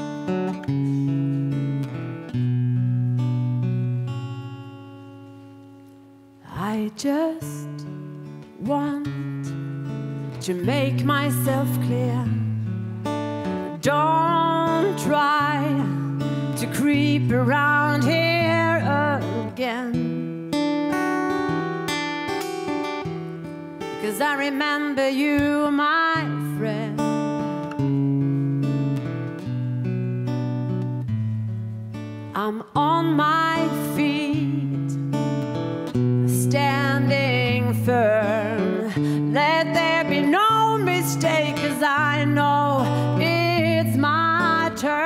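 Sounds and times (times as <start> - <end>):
acoustic guitar: 0.0 - 45.0
woman singing with vibrato: 6.5 - 7.9, 8.6 - 9.5, 10.4 - 12.5, 13.6 - 20.3, 24.0 - 27.3, 32.3 - 35.1, 36.2 - 45.0.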